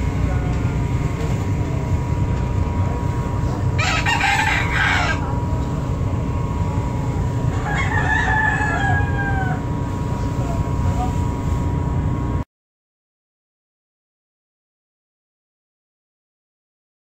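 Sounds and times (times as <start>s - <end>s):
ferry engines droning: 0.0s - 12.4s
rooster crowing: 3.8s - 5.4s, 7.5s - 9.9s.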